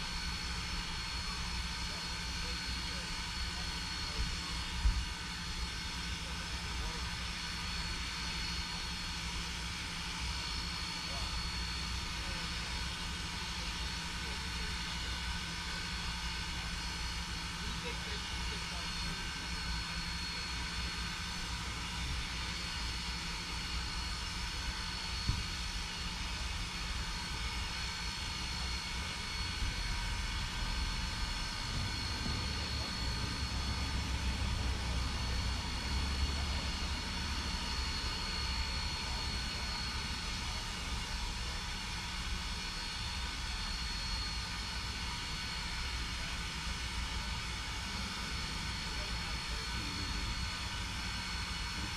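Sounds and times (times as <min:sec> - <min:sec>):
steam locomotive idling rumble: 0:00.0 - 0:51.9
high-pitched whine: 0:18.4 - 0:45.4.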